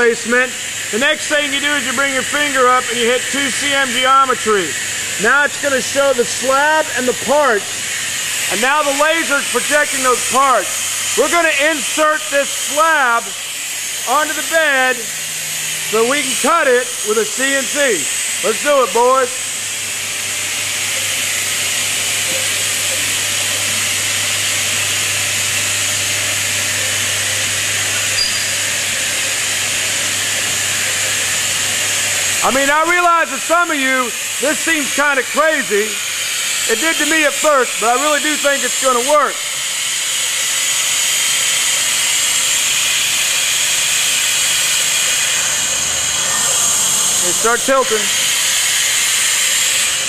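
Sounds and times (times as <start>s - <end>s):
shop machinery hiss and hum: 0.0s - 50.0s
short high beep: 28.2s - 28.6s.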